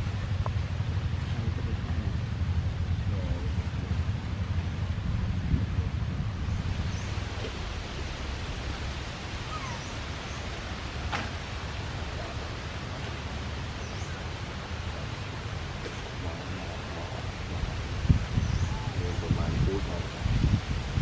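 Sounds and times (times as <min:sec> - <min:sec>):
low rumble: 0:00.0 - 0:21.0
steady hiss: 0:00.0 - 0:21.0.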